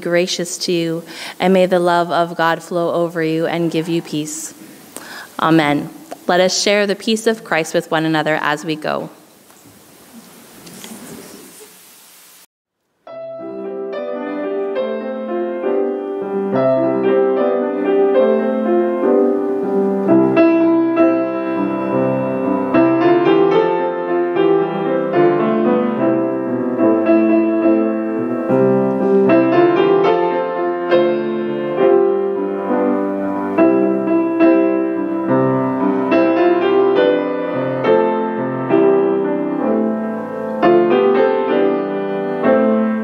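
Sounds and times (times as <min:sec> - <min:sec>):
slow gentle piano piece: 0:13.1 - 0:43.0.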